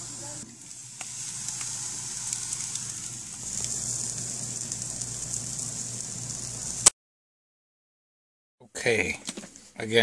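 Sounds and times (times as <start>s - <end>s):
sausages sizzling on a grill: 0.0s - 6.8s.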